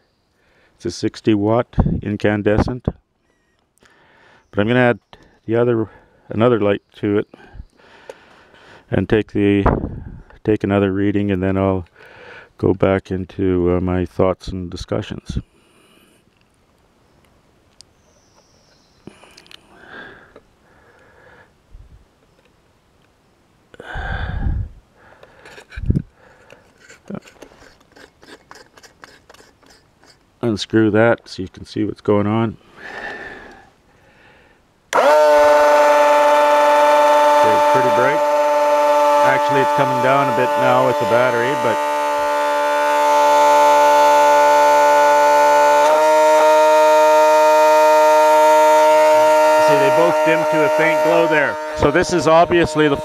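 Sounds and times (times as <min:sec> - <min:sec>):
bulb clicking and scraping in holder: 0:25.2 - 0:30.3
electric motor whine: 0:34.9 - 0:53.0.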